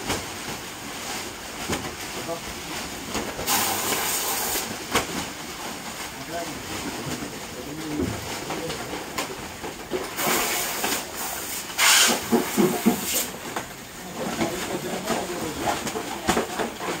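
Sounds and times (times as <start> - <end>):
plastic bags rustling: 0.0 - 17.0
oxygen hissing from hose: 3.4 - 4.7, 10.2 - 13.3.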